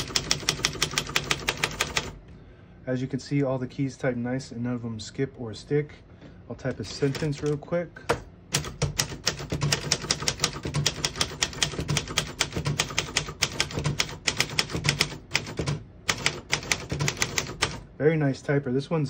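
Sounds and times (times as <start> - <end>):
typewriter keystroke clacks: 0.0 - 2.2, 6.7 - 17.8.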